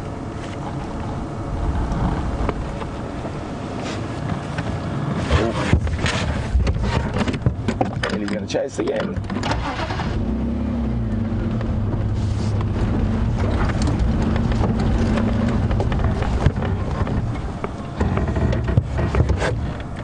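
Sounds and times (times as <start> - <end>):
vehicle engine humming: 0.0 - 20.0
vehicle knocking over rough ground: 11.4 - 20.0.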